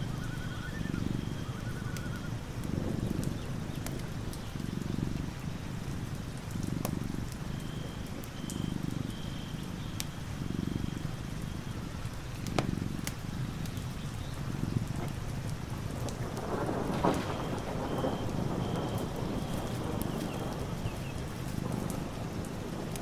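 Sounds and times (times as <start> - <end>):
raindrops ticking: 0.0 - 23.0
cat purring: 2.6 - 17.3.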